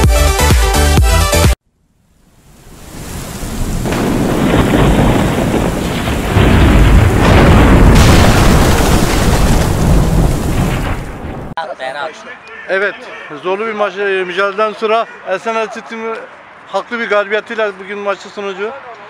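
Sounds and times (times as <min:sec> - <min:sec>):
steady rain: 0:02.0 - 0:11.6
rumbling thunder: 0:02.9 - 0:11.6.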